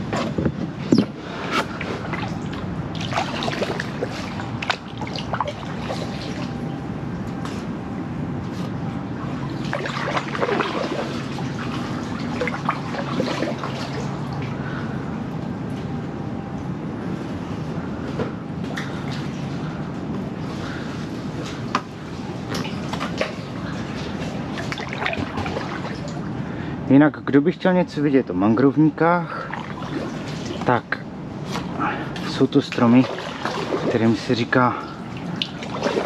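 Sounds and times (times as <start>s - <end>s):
paddle blades splashing: 1.0s - 6.8s, 9.2s - 14.5s, 22.3s - 26.4s, 29.3s - 30.8s, 31.4s - 36.0s.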